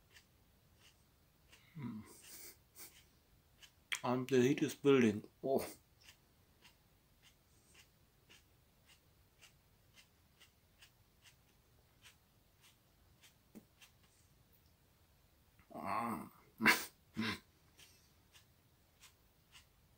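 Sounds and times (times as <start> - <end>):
mouth clicks of chewing: 3.6 - 4.1.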